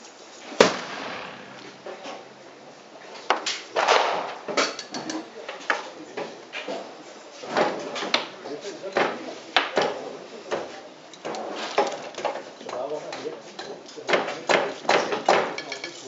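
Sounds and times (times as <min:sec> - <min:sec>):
sharp knock: 0:00.6 - 0:02.2
tools clattering on a table: 0:04.5 - 0:06.8, 0:10.6 - 0:12.9, 0:13.5 - 0:16.0.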